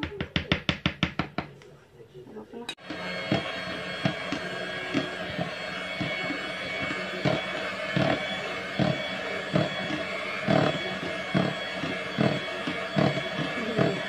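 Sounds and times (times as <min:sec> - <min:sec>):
mixer beaters knocking bowl: 0:02.7 - 0:14.0
electric hand mixer running: 0:02.8 - 0:14.0.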